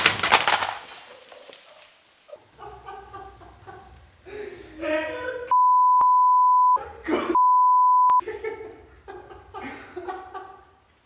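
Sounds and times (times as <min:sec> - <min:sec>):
censor bleeps: 0:05.5 - 0:06.8, 0:07.4 - 0:08.2.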